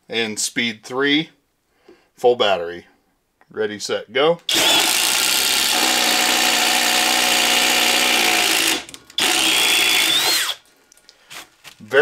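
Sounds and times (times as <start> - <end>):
impact driver drilling into wood: 4.5 - 10.6.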